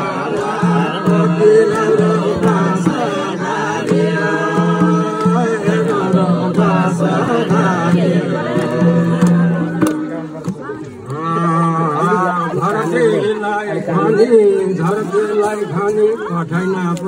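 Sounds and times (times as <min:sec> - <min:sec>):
hand drum beat: 0:00.0 - 0:13.2
voices singing folk melody: 0:00.0 - 0:17.0.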